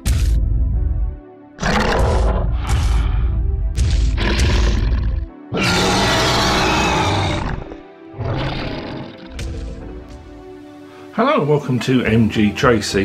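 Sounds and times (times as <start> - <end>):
dinosaur roar: 1.6 - 3.2, 4.2 - 9.3.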